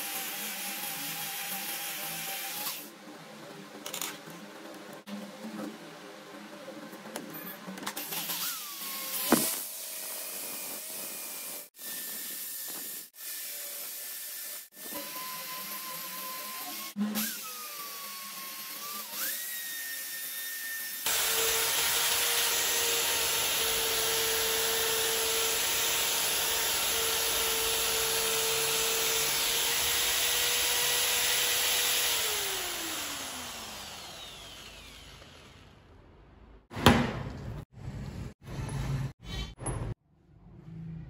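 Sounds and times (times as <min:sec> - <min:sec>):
electric drill motor: 0:08.0 - 0:35.8.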